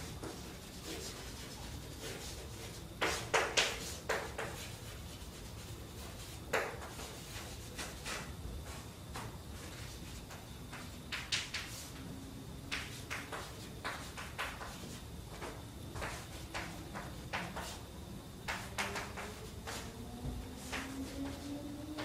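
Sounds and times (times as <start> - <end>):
chalk writing on blackboard: 0.0 - 12.0, 12.7 - 17.8.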